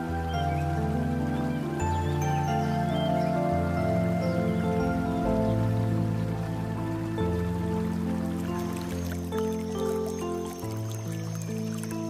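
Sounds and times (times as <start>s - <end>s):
soft instrumental music: 0.0s - 12.0s.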